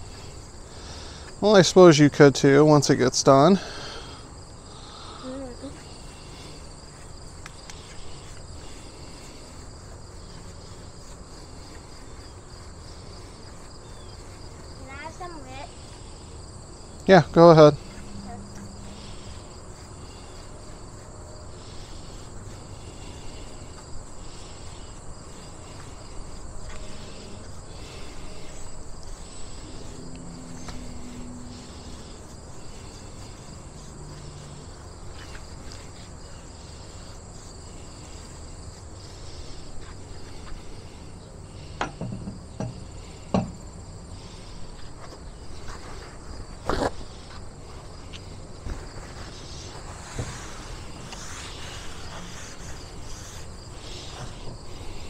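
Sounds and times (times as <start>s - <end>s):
insects chirping trill: 0.0s - 55.0s
sharp knocks: 41.8s - 43.6s.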